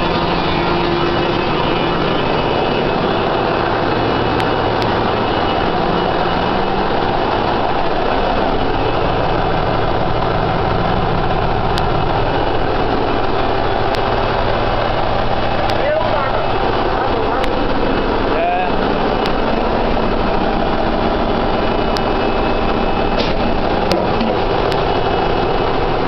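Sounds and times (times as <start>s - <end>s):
engine room machinery din: 0.0s - 26.0s
low hum: 0.0s - 26.0s.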